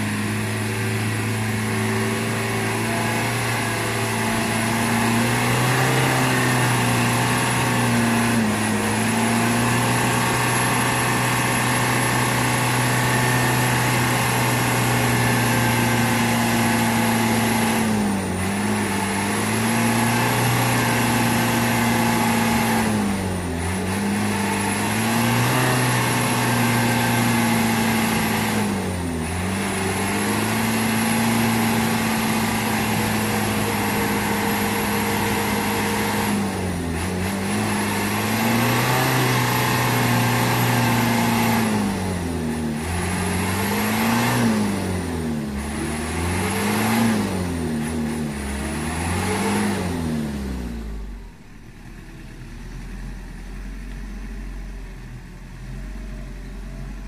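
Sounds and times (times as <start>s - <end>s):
diesel truck engine straining: 0.0s - 57.0s.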